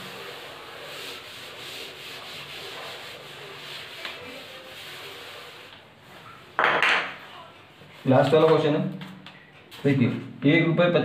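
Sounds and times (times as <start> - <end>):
duster rubbing a chalkboard: 0.0 - 6.5.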